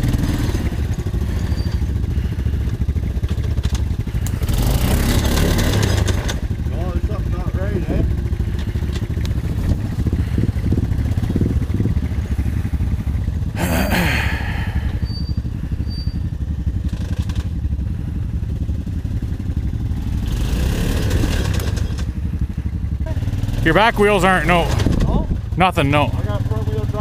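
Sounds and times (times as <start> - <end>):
atv engine revving: 0.0 - 27.0
atv engines running: 0.0 - 27.0.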